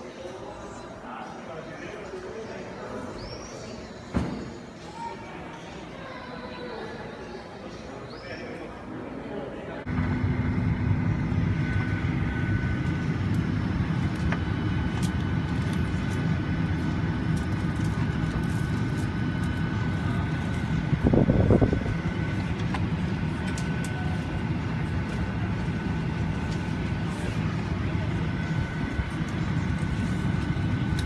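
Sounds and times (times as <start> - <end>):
cabin air system drone: 7.3 - 31.0
faint steady whine: 7.3 - 31.0.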